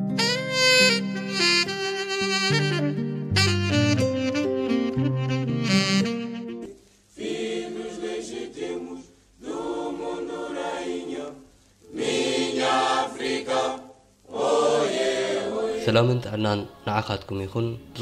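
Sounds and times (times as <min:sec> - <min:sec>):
choir singing: 0:07.2 - 0:18.0.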